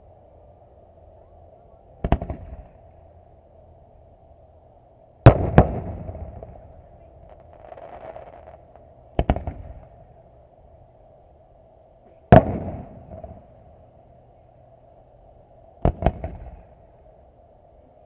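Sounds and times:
firework shells banging: 0:02.0 - 0:02.8, 0:05.2 - 0:09.9.

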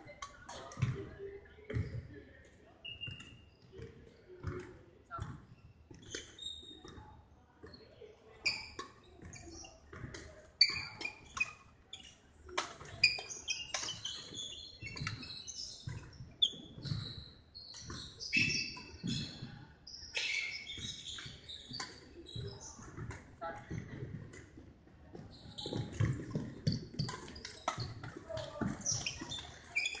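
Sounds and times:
racket hitting shuttlecock: 0:12.5 - 0:14.0
shoes squeaking on wooden floor: 0:25.2 - 0:30.0.

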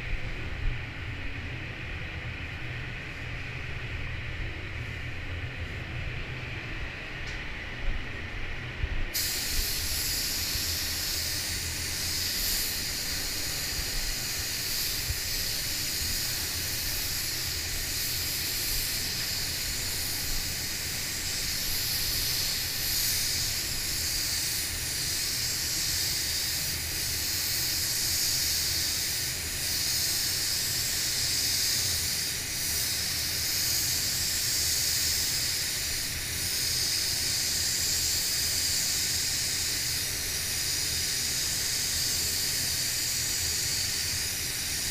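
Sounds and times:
air system hum: 0:00.0 - 0:44.9
spray gun hissing: 0:09.1 - 0:44.9.

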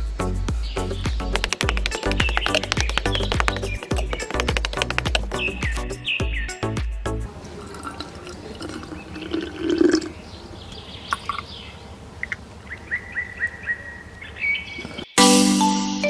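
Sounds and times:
water gurgling: 0:07.3 - 0:10.2
water trickling and splashing: 0:07.3 - 0:12.9.

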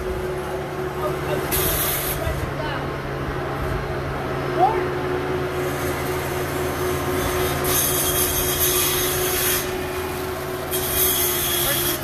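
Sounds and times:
diesel engine running: 0:00.0 - 0:12.0
rough scraping hiss: 0:05.6 - 0:12.0.

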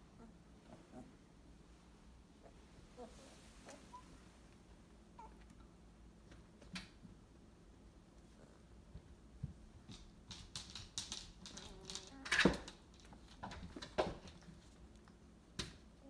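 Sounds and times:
puppies clicking and scuffling: 0:08.9 - 0:15.8.

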